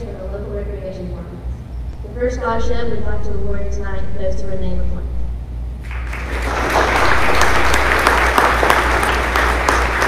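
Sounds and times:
audience applause: 0:05.8 - 0:10.0.

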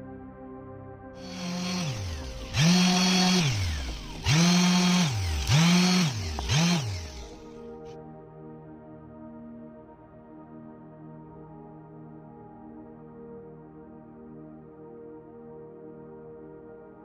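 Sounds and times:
soft background music: 0:00.0 - 0:17.0
power tool motor whining: 0:01.2 - 0:07.8.

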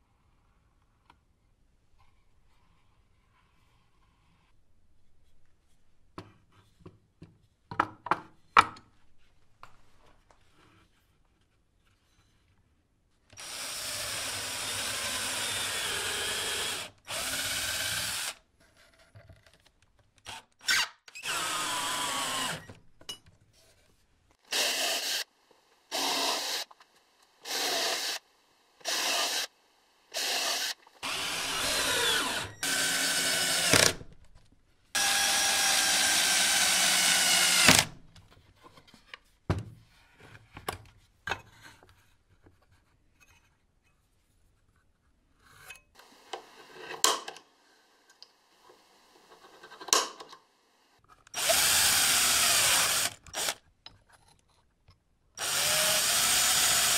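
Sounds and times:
power drill drilling into wood: 0:13.4 - 0:18.4, 0:20.6 - 0:22.7, 0:24.5 - 0:25.3, 0:25.9 - 0:26.7, 0:27.4 - 0:28.2, 0:28.8 - 0:29.5, 0:30.1 - 0:34.0, 0:35.0 - 0:37.9, 0:51.4 - 0:53.6, 0:55.4 - 0:56.9.

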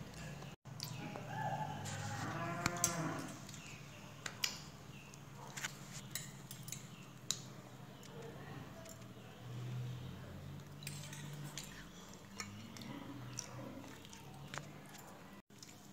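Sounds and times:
cow mooing: 0:01.8 - 0:03.4.

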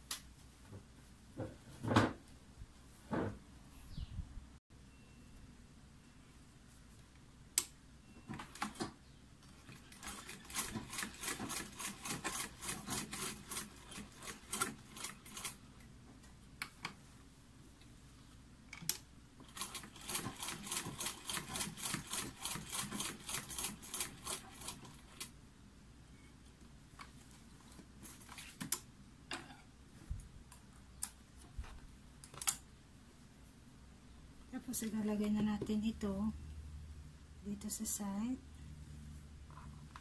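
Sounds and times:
sewing machine clacking: 0:09.7 - 0:15.6, 0:19.4 - 0:25.2.

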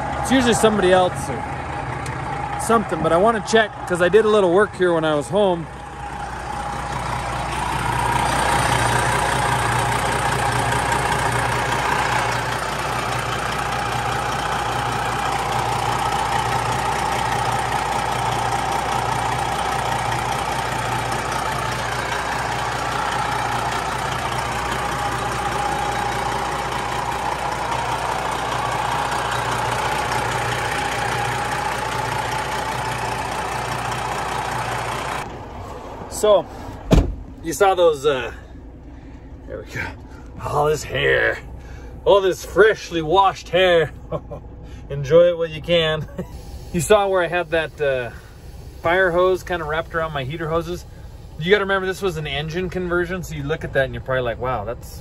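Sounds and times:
diesel truck engine idling: 0:00.0 - 0:55.0
turbo whine: 0:05.9 - 0:35.4.

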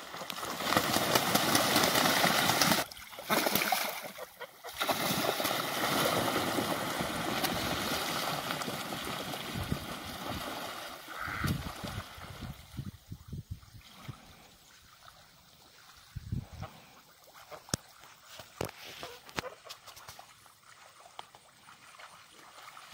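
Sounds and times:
wings flapping: 0:00.0 - 0:10.6
birds splashing in water: 0:00.0 - 0:12.8.

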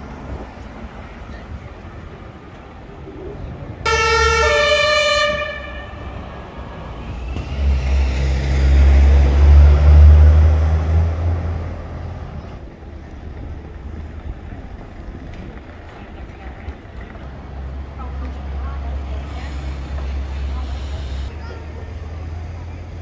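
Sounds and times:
heavy vehicle engine rumbling past: 0:00.0 - 0:23.0
vehicle horn two-tone: 0:03.9 - 0:06.0.

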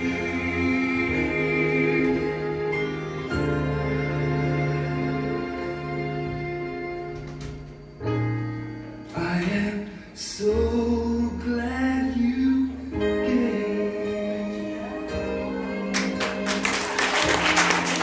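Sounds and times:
worship song singing: 0:00.0 - 0:03.7
people clapping: 0:15.9 - 0:18.0.

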